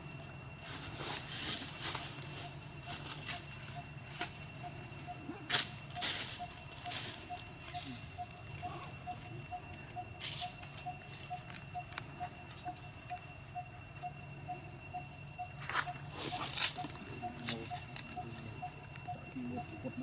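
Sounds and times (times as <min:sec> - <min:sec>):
bird high chirp: 0:04.6 - 0:20.0.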